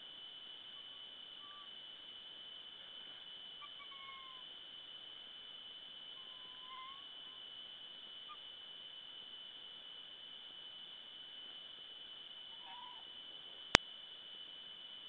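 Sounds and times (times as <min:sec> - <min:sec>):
steady high-pitched hum: 0:00.0 - 0:15.0
faint whining animal calls: 0:00.6 - 0:02.0, 0:03.0 - 0:04.9, 0:05.9 - 0:08.7, 0:12.4 - 0:13.6.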